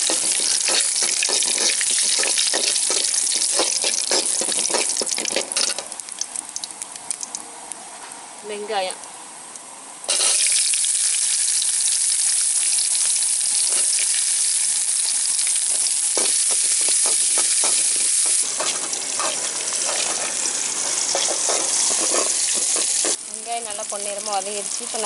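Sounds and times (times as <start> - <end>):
metal ladle scraping pan: 0.0 - 6.0, 10.1 - 10.5, 18.4 - 23.2
onions sizzling in hot oil: 0.0 - 7.4, 10.1 - 25.0.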